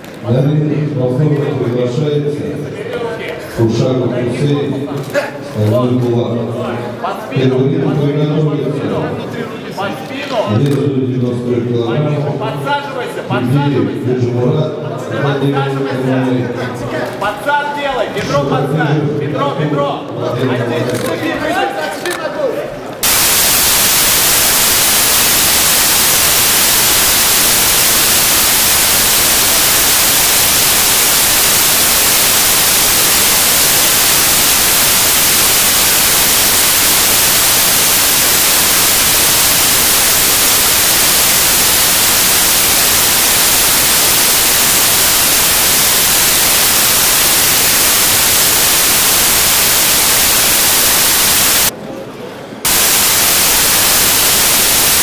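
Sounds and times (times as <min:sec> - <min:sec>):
static hiss: 0:23.0 - 0:51.7, 0:52.6 - 0:55.0.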